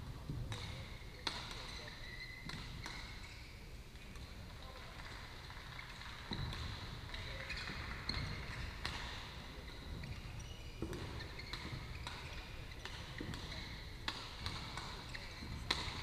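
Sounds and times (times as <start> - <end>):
shoes squeaking on court floor: 0.1 - 16.0
rackets hitting shuttlecocks: 10.8 - 16.0.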